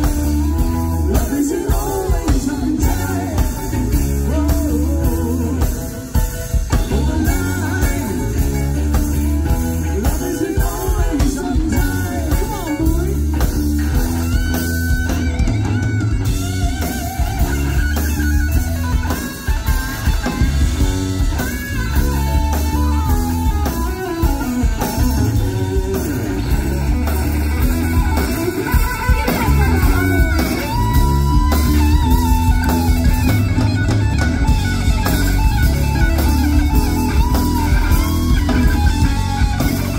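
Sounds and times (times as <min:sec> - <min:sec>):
bass: 0:00.0 - 0:39.9
drum kit beat: 0:00.0 - 0:39.9
electric guitar: 0:00.0 - 0:39.9
person singing: 0:00.2 - 0:13.4.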